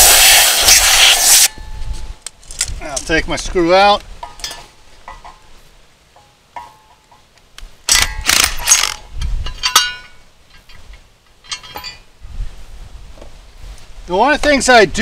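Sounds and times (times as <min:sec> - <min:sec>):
ringing metal clinks: 0:09.4 - 0:10.8, 0:11.4 - 0:12.1.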